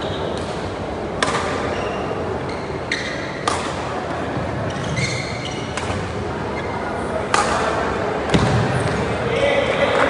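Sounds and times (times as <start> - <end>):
sports hall background noise: 0.0 - 10.0
racket striking shuttlecock: 1.2 - 1.8, 3.4 - 3.9
shoe squeaks on court floor: 1.5 - 3.4, 4.6 - 6.8.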